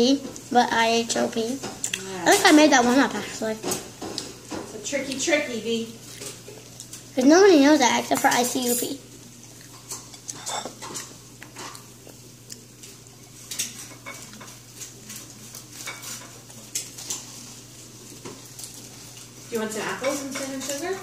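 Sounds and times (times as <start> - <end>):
dishes and cutlery clinking: 8.0 - 9.0, 9.7 - 11.9, 13.4 - 17.4, 19.6 - 21.0.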